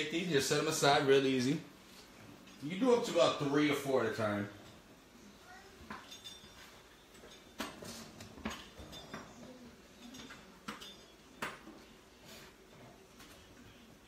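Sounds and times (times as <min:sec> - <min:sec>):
utensils clattering: 0:05.9 - 0:14.0.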